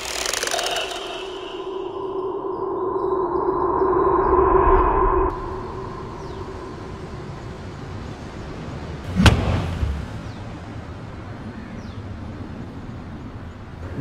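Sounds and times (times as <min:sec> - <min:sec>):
loud thud: 0:09.1 - 0:10.4.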